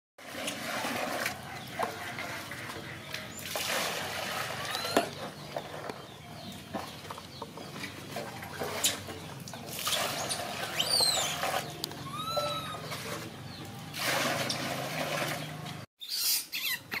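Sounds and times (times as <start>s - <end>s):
water pouring into plastic tub: 0.2s - 1.4s, 3.4s - 5.2s, 9.7s - 12.2s, 13.9s - 15.6s.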